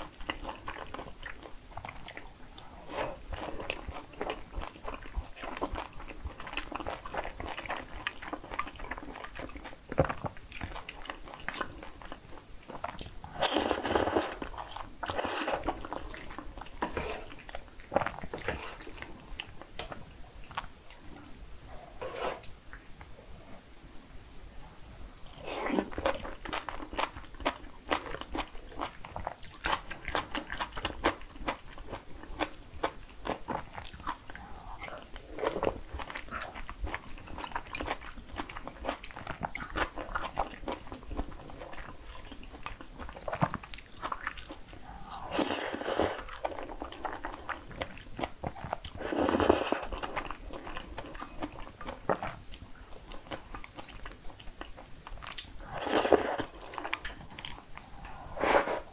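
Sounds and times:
wet chewing and mouth clicks: 0.0 - 21.3, 25.3 - 58.2
noodle slurps: 55.7 - 56.7.

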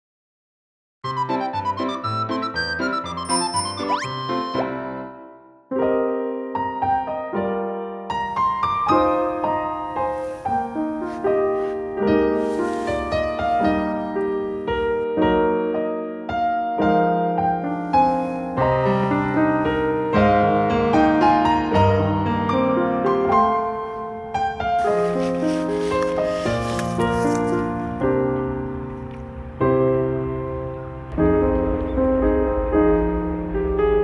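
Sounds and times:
gentle piano music: 1.1 - 34.0.

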